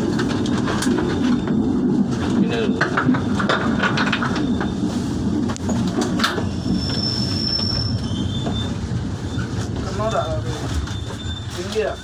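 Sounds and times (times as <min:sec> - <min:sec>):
train wheels rumbling on rail: 0:00.0 - 0:12.0
thin high squeal: 0:06.6 - 0:12.0.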